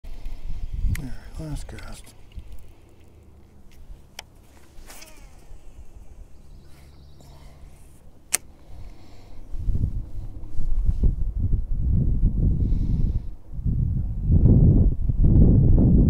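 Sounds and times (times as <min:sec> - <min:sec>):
faint electric motor hum: 0:00.1 - 0:15.6
fishing reel clicks: 0:04.1 - 0:07.4
loud low rumble: 0:08.6 - 0:16.0.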